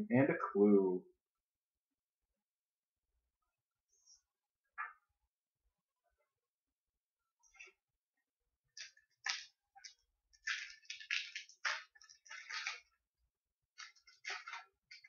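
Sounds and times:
foil wrapper crinkling and tearing: 8.8 - 12.8.

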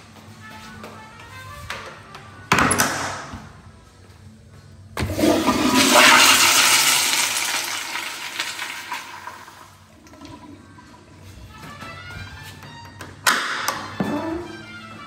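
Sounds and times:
toilet flushing: 5.0 - 10.7.

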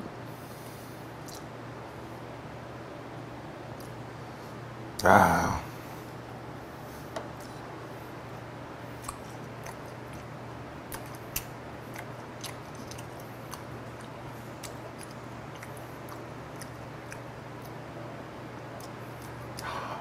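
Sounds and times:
steady low hum: 0.0 - 20.0
wet chewing: 8.9 - 17.8, 18.7 - 19.7
crisp crunches while chewing: 10.9 - 17.8.

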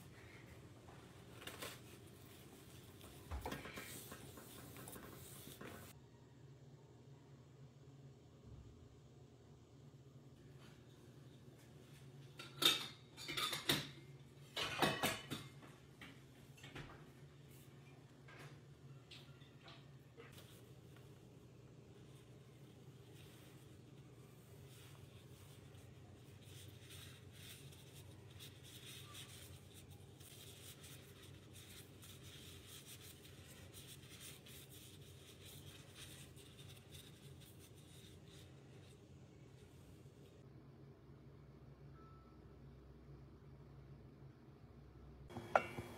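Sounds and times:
pastry sheets rustling and crackling: 0.0 - 6.0, 20.2 - 40.4
low steady hum: 0.0 - 45.9
small scratches: 22.0 - 39.0.

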